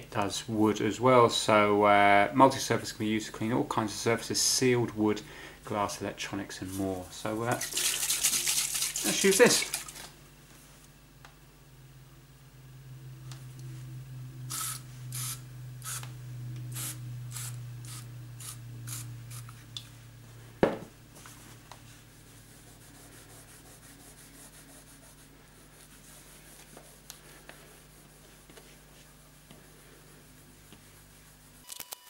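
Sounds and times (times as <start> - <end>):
loud knock: 20.6 - 20.9
cloth rubbing on wood: 21.1 - 31.6.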